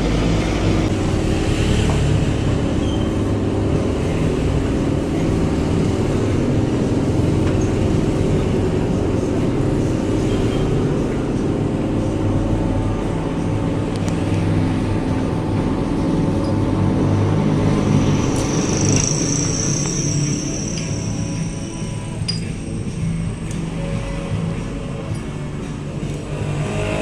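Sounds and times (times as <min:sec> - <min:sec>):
thin high whine: 0:14.0 - 0:26.2.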